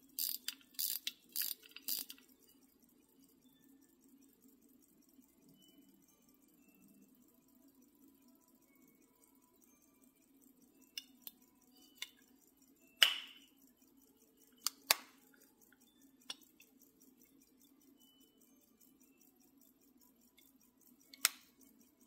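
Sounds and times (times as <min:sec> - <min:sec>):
pocket watch lid clicks: 0:00.2 - 0:02.2.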